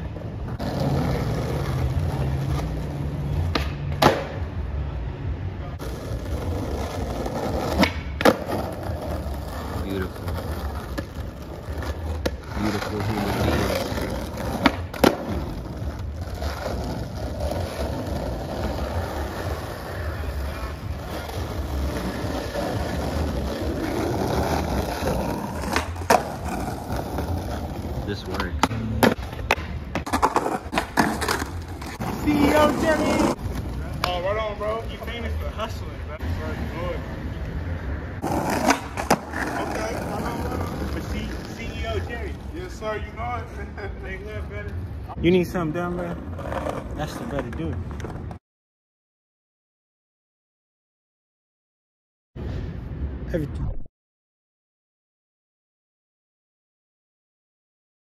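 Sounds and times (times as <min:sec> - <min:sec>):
skateboard wheels rumbling: 0:00.0 - 0:04.7, 0:05.8 - 0:48.4
skateboard clacks: 0:03.4 - 0:04.5, 0:05.8 - 0:34.3, 0:38.2 - 0:42.1.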